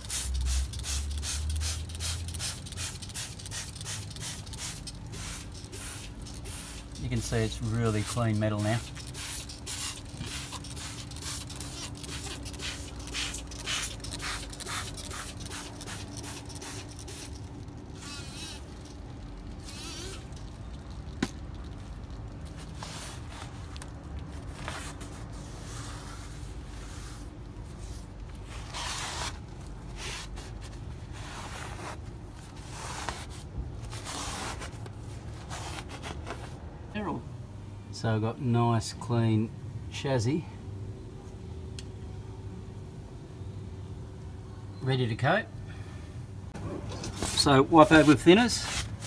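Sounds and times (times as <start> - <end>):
trigger spray bottle squirting: 8.8 - 17.4, 18.0 - 21.5.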